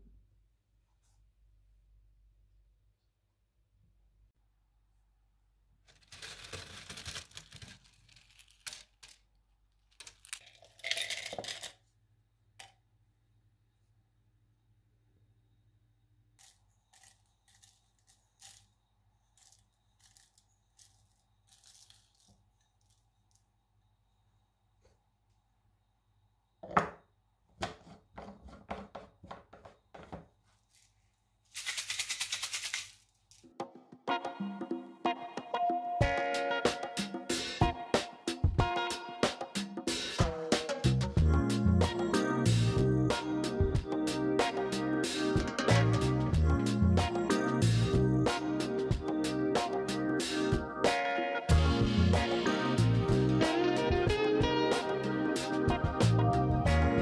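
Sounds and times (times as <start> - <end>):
dried peels crackling and rustling: 5.9 - 10.6
background music: 34.1 - 57.0.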